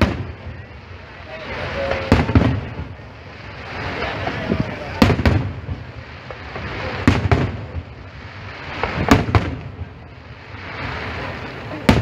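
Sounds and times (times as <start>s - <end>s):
background firework noise: 0.0s - 12.0s
firework shells bursting: 1.5s - 12.0s.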